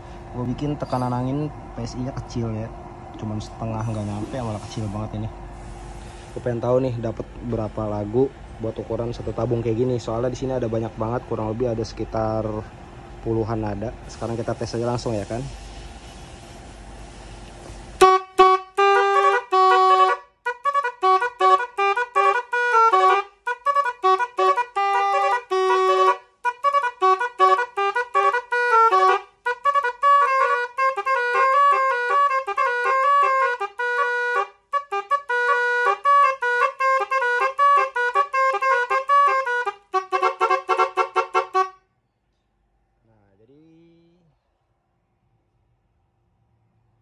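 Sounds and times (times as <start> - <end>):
air horn playing a melody: 17.7 - 41.8.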